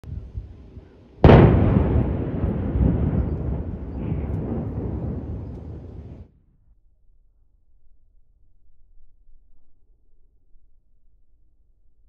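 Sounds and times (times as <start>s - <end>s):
long rumble: 0.0s - 6.2s
demolition blast: 1.2s - 6.4s.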